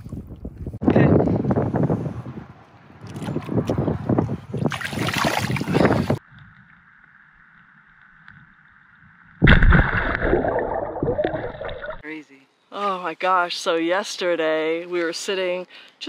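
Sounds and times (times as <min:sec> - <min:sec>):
wind buffeting microphone: 0:00.0 - 0:06.7
water sloshing and splashing: 0:04.6 - 0:06.2, 0:09.4 - 0:12.0
loud underwater splash: 0:09.4 - 0:12.0.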